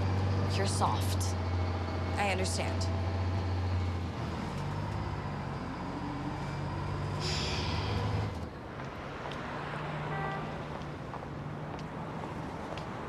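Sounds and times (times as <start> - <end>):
heavy vehicle engine humming: 0.0 - 13.0.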